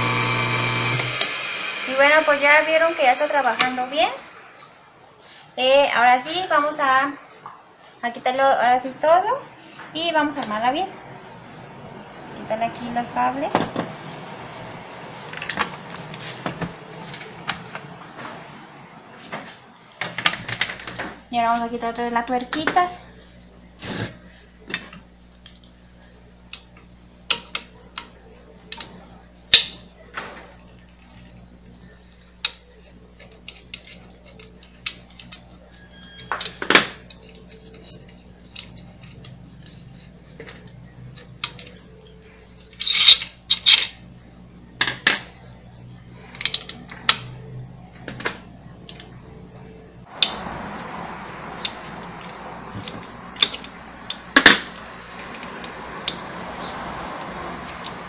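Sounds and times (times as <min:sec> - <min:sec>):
metal parts clicking and clinking: 0:33.2 - 0:39.8, 0:42.6 - 0:44.0, 0:46.3 - 0:47.3.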